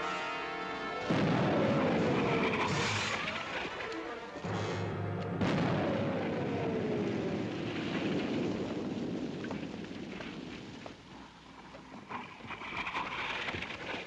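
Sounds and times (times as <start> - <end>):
artillery blast: 1.0 - 10.6
music: 4.4 - 5.4.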